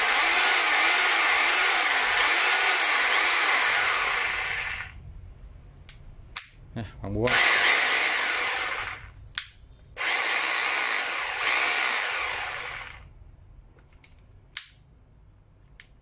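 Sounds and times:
rotary hammer drill running: 0:00.0 - 0:04.9, 0:07.3 - 0:09.1, 0:10.0 - 0:13.1.

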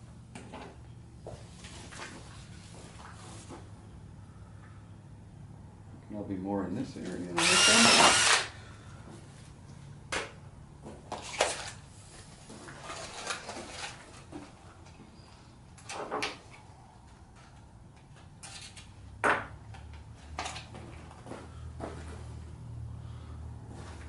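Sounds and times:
small tools clicking and clattering: 0:17.4 - 0:18.9.

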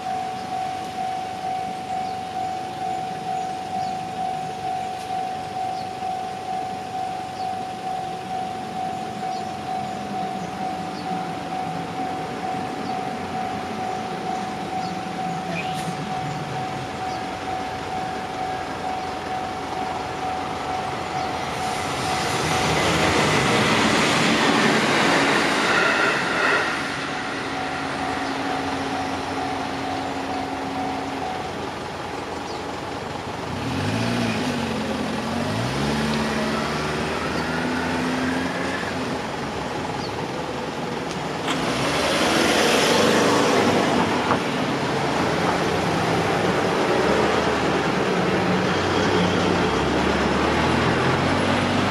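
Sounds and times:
level crossing bell ringing: 0:00.0 - 0:22.7, 0:27.3 - 0:31.8
car engines accelerating: 0:07.6 - 0:51.9
train rushing past: 0:19.7 - 0:32.0, 0:41.3 - 0:51.9
car passing: 0:20.0 - 0:31.9, 0:33.5 - 0:39.7, 0:41.4 - 0:51.9.

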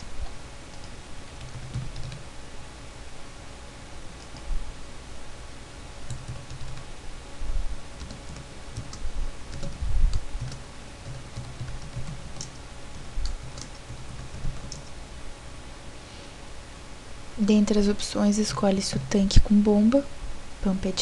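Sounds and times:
computer keyboard typing: 0:00.7 - 0:02.3, 0:04.2 - 0:04.5, 0:06.0 - 0:06.9, 0:08.0 - 0:15.0.

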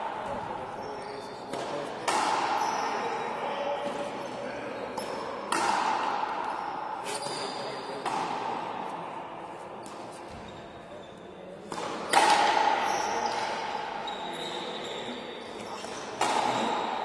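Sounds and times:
hall echo: 0:01.6 - 0:11.0.

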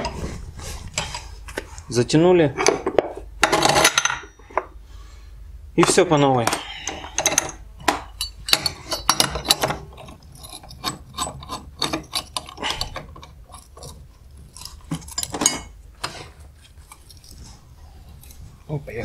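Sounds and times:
metal clicks and scraping: 0:05.8 - 0:17.5.

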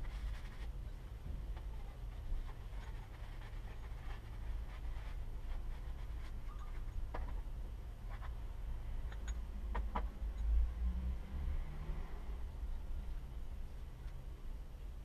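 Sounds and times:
cloth rag rubbing metal tube: 0:00.0 - 0:00.8, 0:01.6 - 0:07.0.

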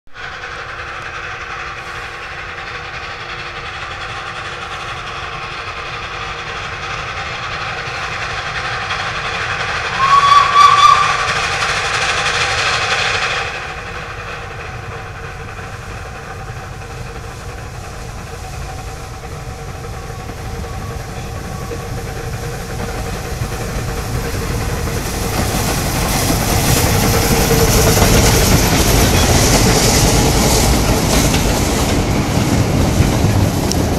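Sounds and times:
train running on rails: 0:00.1 - 0:33.9
steam locomotive whistle: 0:09.8 - 0:11.6.

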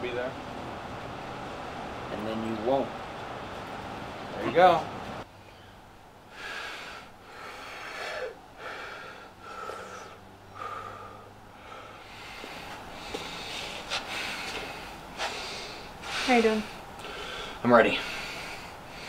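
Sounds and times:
man breathing heavily: 0:06.3 - 0:19.0.

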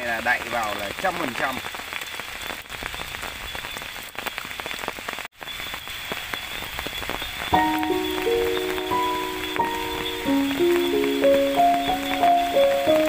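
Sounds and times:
rain falling: 0:00.0 - 0:13.0
raindrop ticks: 0:00.0 - 0:13.0
keyboard music with held notes: 0:07.6 - 0:13.0.

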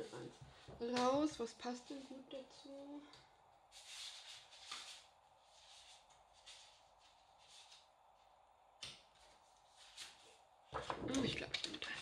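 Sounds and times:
paper sheets rustling: 0:03.7 - 0:08.3, 0:09.0 - 0:12.0.

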